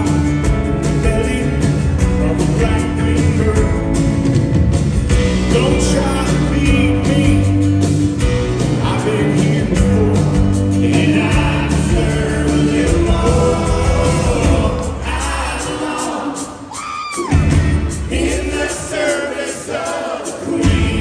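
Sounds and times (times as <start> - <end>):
man singing: 0.0 - 4.2, 5.4 - 7.8, 8.6 - 16.7
bass guitar: 0.0 - 16.0, 17.2 - 18.8, 20.6 - 21.0
piano: 0.0 - 19.2.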